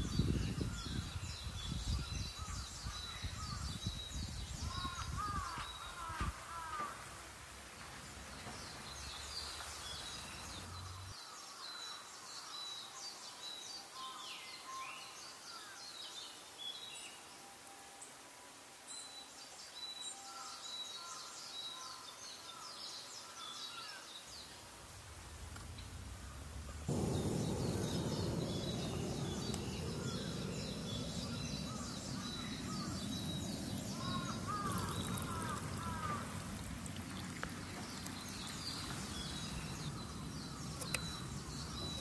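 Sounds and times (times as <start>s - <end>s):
faint outdoor hiss: 0.0s - 42.0s
small birds chirping: 22.4s - 42.0s
falling whistled bird note: 25.8s - 35.1s.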